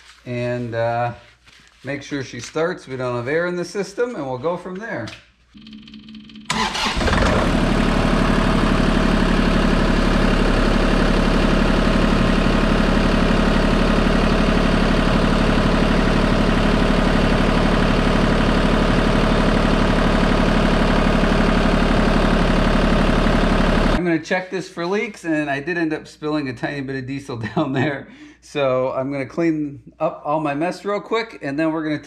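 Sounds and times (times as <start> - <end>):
diesel engine starting and idling: 5.6 - 24.0.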